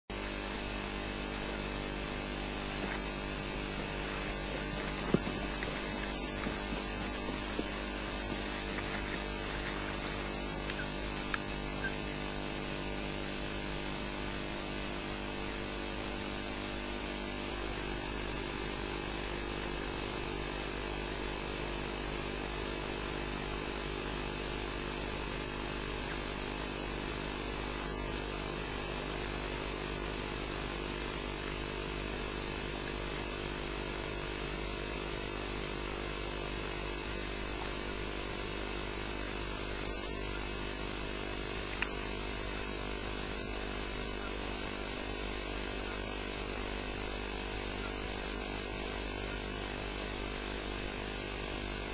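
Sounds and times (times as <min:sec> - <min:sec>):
electrical mains hum: 0:00.1 - 0:51.9
high-pitched whine: 0:00.2 - 0:20.6.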